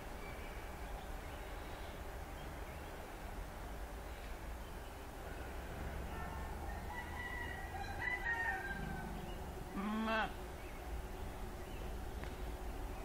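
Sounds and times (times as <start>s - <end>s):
animal calls: 5.8s - 10.4s.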